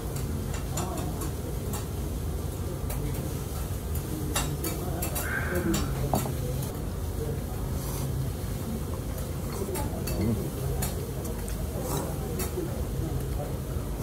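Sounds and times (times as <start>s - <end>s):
low hum of dining room: 0.0s - 14.0s
dishes and cutlery clinking: 2.8s - 6.7s, 9.4s - 12.6s.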